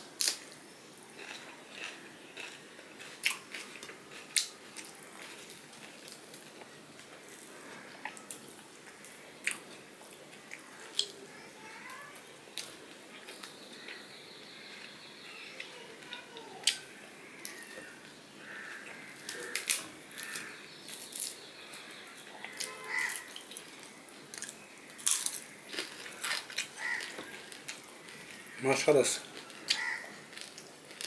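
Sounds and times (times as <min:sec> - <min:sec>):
chewing: 0:01.2 - 0:11.2, 0:12.6 - 0:28.6, 0:29.2 - 0:31.0
fried fish crackling: 0:10.5 - 0:31.0.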